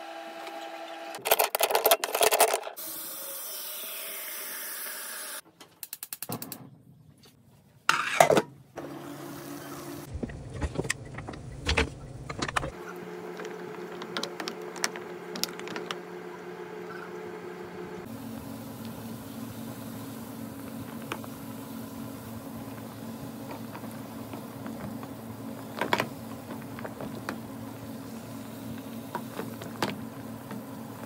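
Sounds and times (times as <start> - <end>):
steady hum: 9.6 - 31.0
boiling water: 12.7 - 31.0.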